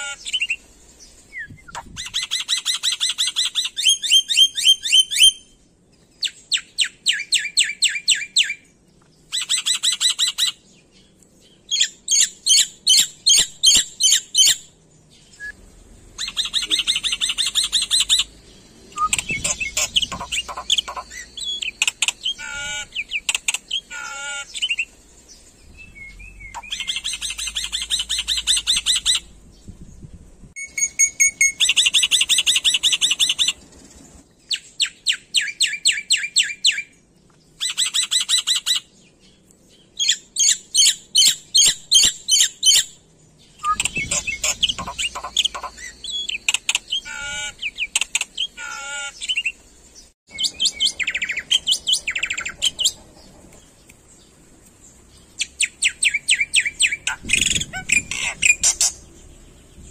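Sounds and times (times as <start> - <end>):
bird singing: 0.0 - 59.9.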